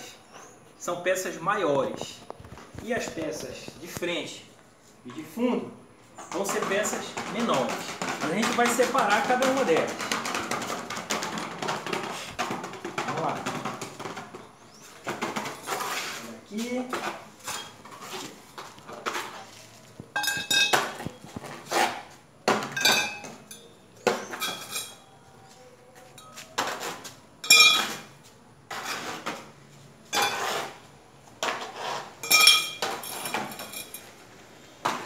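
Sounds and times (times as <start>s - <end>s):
metal tubes knocking and clinking: 20.1s - 21.0s, 22.7s - 25.0s, 27.4s - 28.1s, 32.2s - 34.1s.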